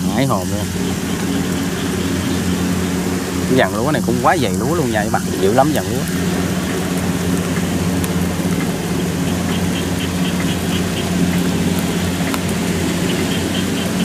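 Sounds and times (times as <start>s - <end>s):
combine harvester diesel engine: 0.0s - 14.0s
steady hiss: 0.0s - 14.0s.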